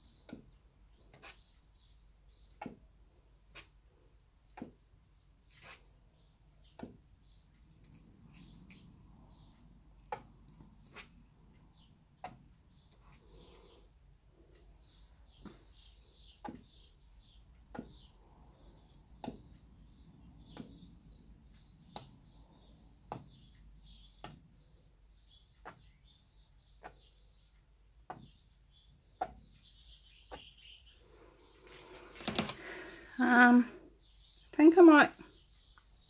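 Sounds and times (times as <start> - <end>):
faint bird chirps: 0.0 - 36.0.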